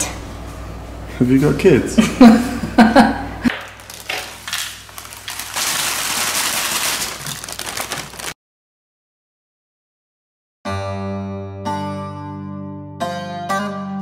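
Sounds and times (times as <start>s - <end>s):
baking paper crackling: 3.5s - 8.4s
seeds rattling into bowl: 3.6s - 8.4s.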